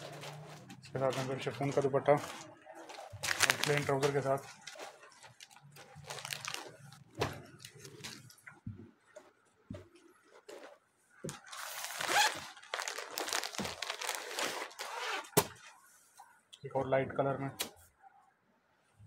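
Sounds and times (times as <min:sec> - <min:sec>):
plastic packaging crinkling: 0:00.0 - 0:08.4, 0:11.3 - 0:15.4.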